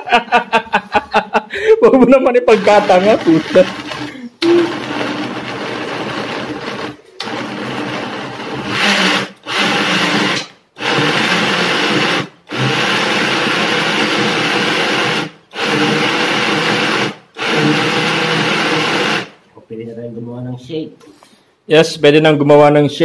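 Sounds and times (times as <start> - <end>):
blender motor running: 2.5 - 19.4.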